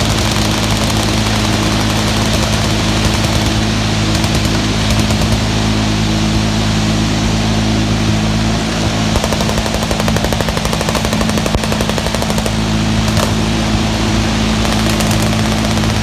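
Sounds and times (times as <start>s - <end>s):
distant machine-gun fire: 0.0s - 5.5s, 9.1s - 13.6s, 14.6s - 16.0s
steady low drone: 0.0s - 16.0s.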